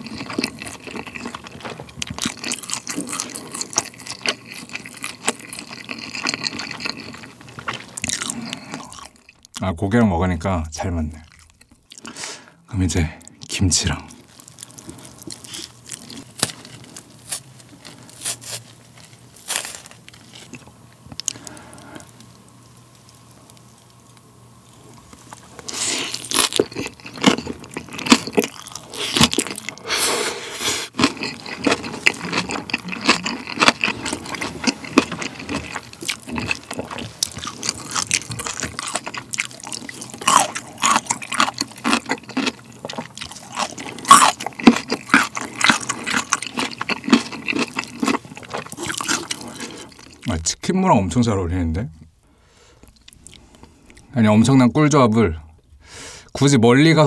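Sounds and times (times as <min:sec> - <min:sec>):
crunchy chewing: 0:00.0 - 0:09.6, 0:14.1 - 0:29.9, 0:30.9 - 0:50.3
mouth smacking: 0:32.0 - 0:33.8.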